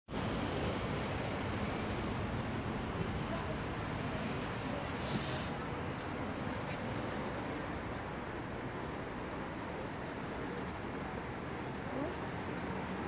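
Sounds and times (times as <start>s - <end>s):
street background noise: 0.1s - 13.0s
brief hiss: 5.0s - 5.6s.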